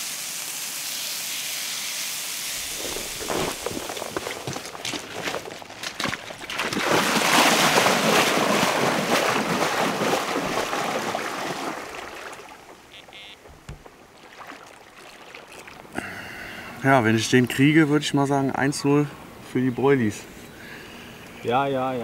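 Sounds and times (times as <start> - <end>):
water splashing from wading: 2.5 - 16.7.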